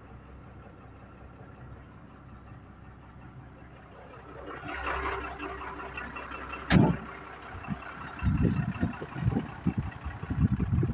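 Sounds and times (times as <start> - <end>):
truck door slamming: 6.7 - 7.1
wind buffeting microphone: 6.7 - 10.9.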